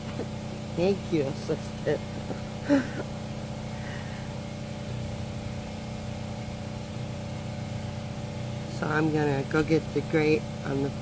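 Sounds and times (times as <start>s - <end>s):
generator engine humming: 0.0s - 11.0s
person laughing: 2.2s - 3.2s.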